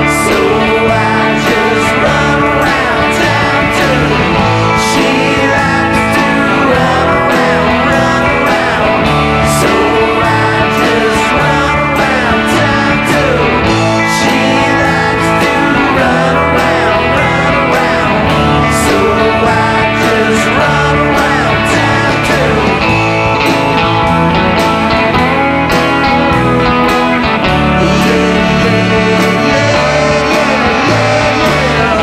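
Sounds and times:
drum kit with cymbal hits: 0:00.0 - 0:32.0
electric guitars: 0:00.0 - 0:32.0
person singing: 0:00.0 - 0:32.0.

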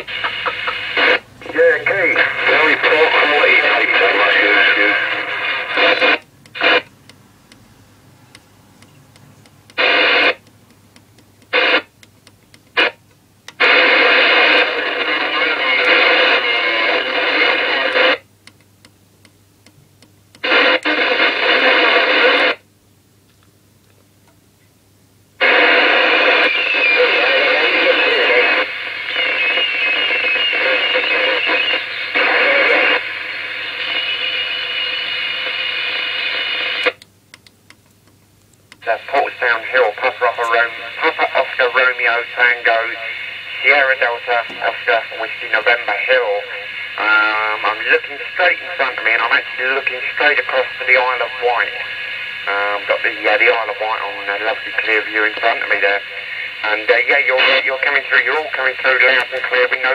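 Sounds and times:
short radio blips: 0:00.0 - 0:06.9, 0:25.4 - 0:37.0, 0:38.8 - 0:59.9
radio static bursts: 0:00.0 - 0:07.0, 0:09.6 - 0:10.5, 0:11.4 - 0:12.1, 0:12.7 - 0:18.3, 0:20.4 - 0:22.6, 0:25.4 - 0:37.0, 0:38.7 - 0:59.9
indistinct radio transmissions: 0:00.0 - 0:07.7, 0:08.3 - 0:18.6, 0:20.0 - 0:22.7, 0:25.4 - 0:59.9.

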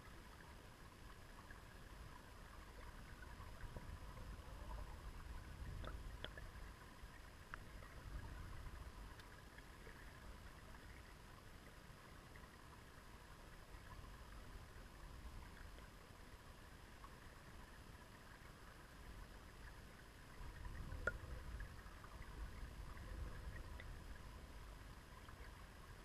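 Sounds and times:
river flowing underwater: 0:00.0 - 0:26.0
faint clicks: 0:05.6 - 0:06.6, 0:07.4 - 0:08.0, 0:09.0 - 0:10.0.

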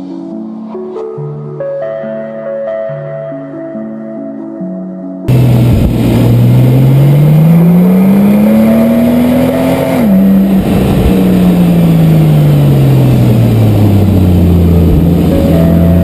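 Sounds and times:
gear change pitch drop: 0:05.3 - 0:16.0
sports car accelerating: 0:05.3 - 0:16.0.

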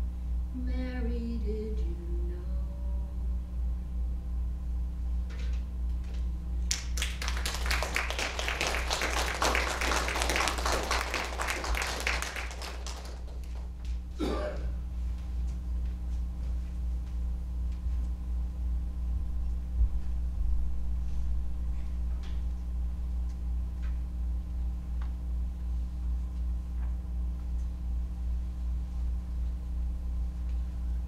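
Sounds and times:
steady low hum: 0:00.0 - 0:31.0
congregation applauding: 0:06.7 - 0:13.8.

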